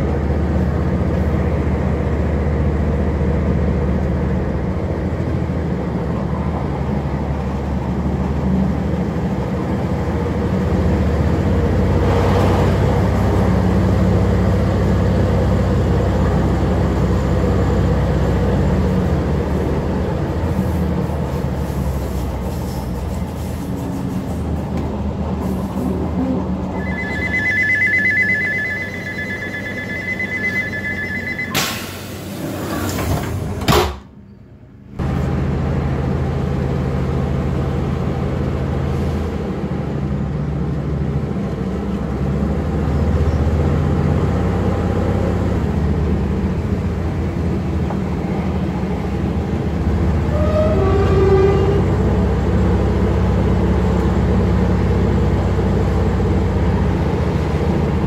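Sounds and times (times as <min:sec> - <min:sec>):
train diesel engine droning: 0:00.0 - 0:33.6, 0:34.2 - 0:58.0
two-tone electronic beep: 0:26.8 - 0:31.8
rising whine: 0:26.8 - 0:31.9.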